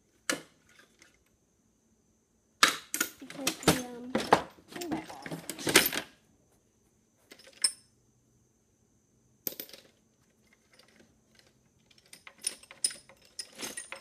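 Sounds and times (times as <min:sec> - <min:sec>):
metal tools clinking: 0:02.9 - 0:06.1, 0:07.3 - 0:07.9, 0:09.5 - 0:14.0.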